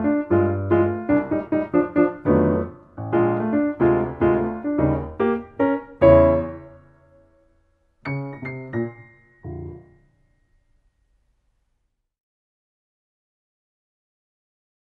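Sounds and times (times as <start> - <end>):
solo jazz piano: 0.0 - 10.2.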